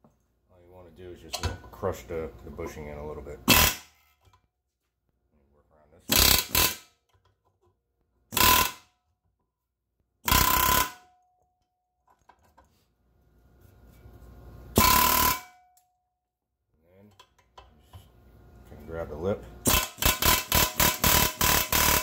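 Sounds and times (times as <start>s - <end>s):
air hammer rattling on metal: 19.6s - 22.0s.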